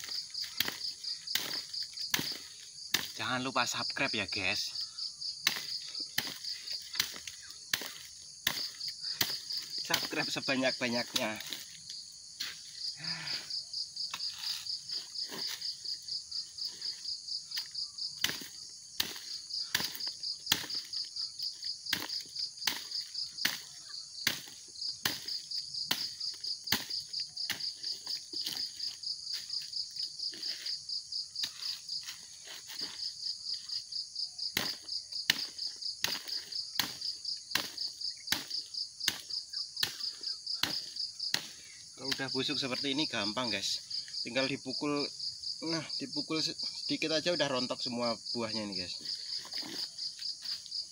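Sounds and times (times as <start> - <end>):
metal tool striking fruit bunches: 0.0 - 3.8, 5.4 - 11.8, 17.5 - 29.7, 34.5 - 43.4
insect trill: 0.0 - 50.9.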